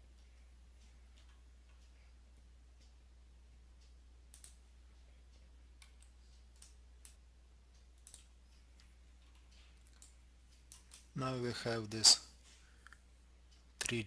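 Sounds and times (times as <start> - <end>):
low steady hum: 0.0 - 14.0
computer mouse clicks: 3.8 - 4.6, 5.3 - 11.1.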